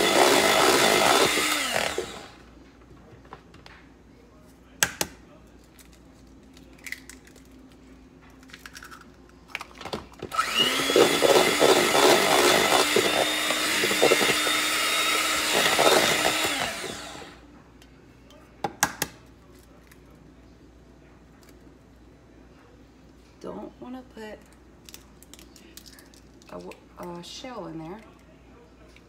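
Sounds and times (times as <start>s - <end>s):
electric hand mixer beating batter: 0.0s - 2.4s, 10.3s - 17.4s.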